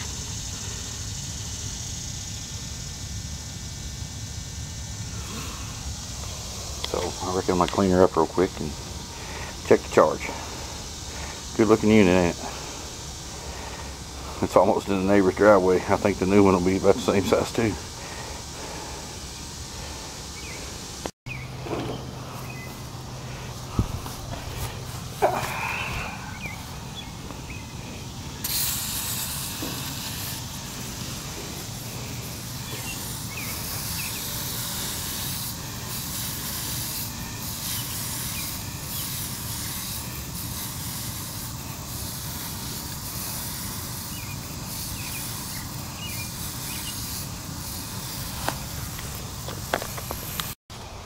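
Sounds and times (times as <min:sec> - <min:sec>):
sprayer hissing: 0:00.0 - 0:51.0.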